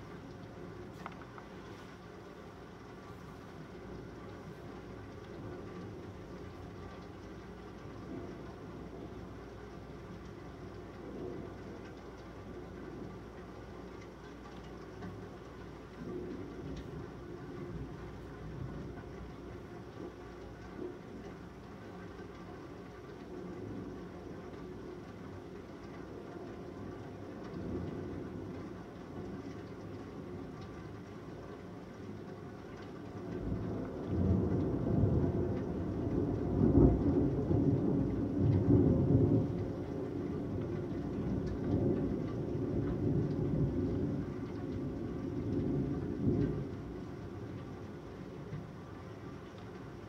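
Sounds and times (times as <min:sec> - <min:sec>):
steady rain: 0:00.0 - 0:50.0
thunder rolling: 0:33.2 - 0:48.8.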